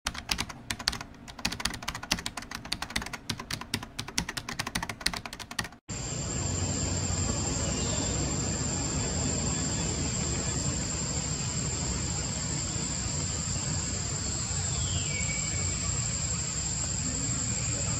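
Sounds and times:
rapid keyboard typing clicks: 0:00.1 - 0:05.8.

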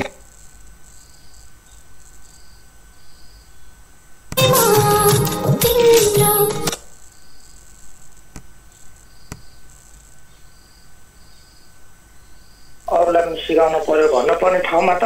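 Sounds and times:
online radio music: 0:04.4 - 0:06.8, 0:12.9 - 0:15.0.

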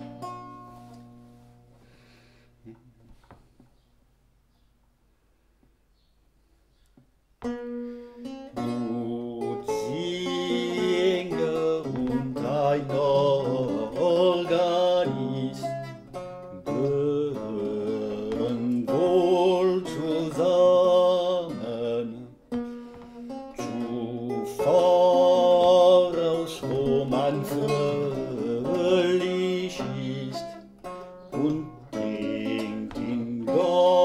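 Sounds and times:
lute plucked: 0:00.0 - 0:03.9, 0:07.4 - 0:34.0
man singing: 0:08.6 - 0:22.5, 0:23.5 - 0:30.7, 0:31.3 - 0:34.0.

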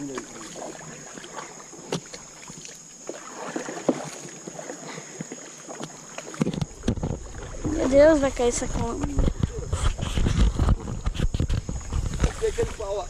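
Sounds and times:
paddle knocking on canoe: 0:00.0 - 0:13.0
paddle splashing water: 0:00.0 - 0:13.0.

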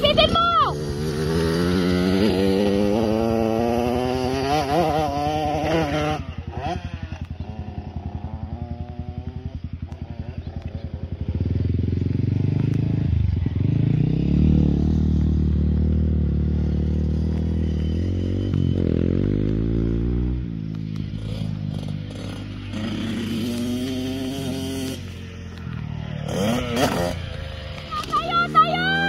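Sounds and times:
dirt bike engine revving: 0:00.0 - 0:29.0.

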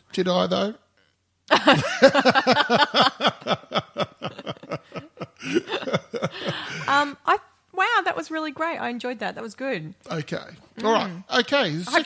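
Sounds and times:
people laughing: 0:01.5 - 0:07.1.

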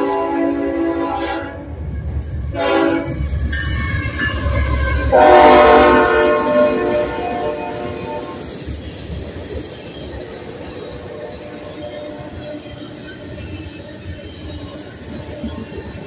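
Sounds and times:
locomotive air horn blasts: 0:00.0 - 0:01.6, 0:02.5 - 0:08.4
locomotive engines and wheels rumbling: 0:00.0 - 0:16.0.

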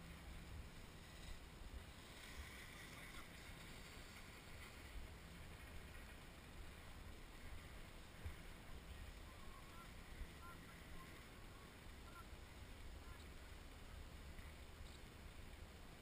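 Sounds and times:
faint low rumble: 0:00.0 - 0:16.0
faint high-pitched calls: 0:09.2 - 0:12.4.

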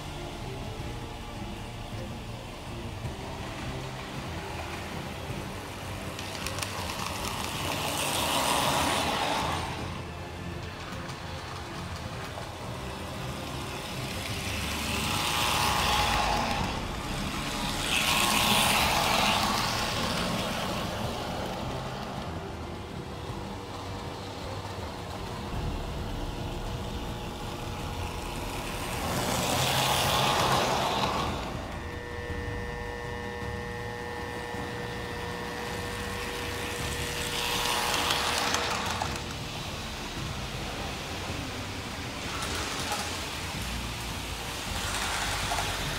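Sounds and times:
model train rumbling on rails: 0:00.0 - 0:45.9.

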